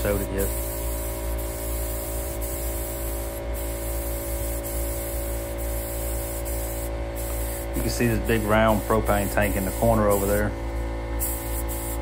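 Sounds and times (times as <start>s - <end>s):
paint spray gun hissing: 0.0s - 12.0s.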